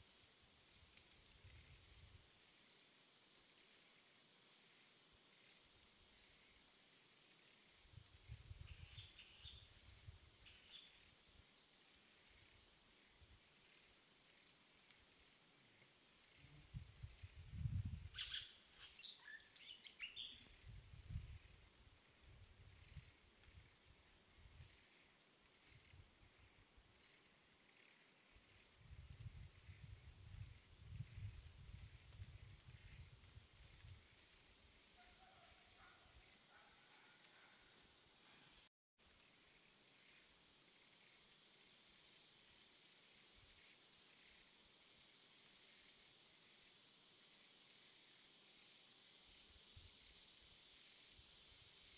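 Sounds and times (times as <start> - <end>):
faint chirps: 7.8 - 21.7.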